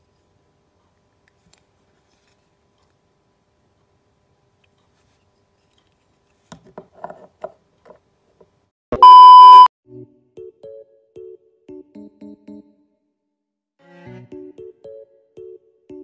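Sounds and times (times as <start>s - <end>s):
electronic beep: 9.0s - 9.7s
background music: 13.8s - 16.0s.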